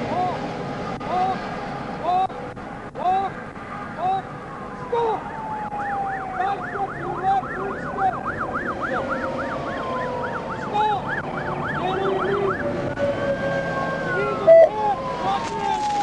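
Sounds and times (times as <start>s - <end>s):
siren slow wail: 0.0s - 16.0s
siren fast yelp: 3.9s - 16.0s.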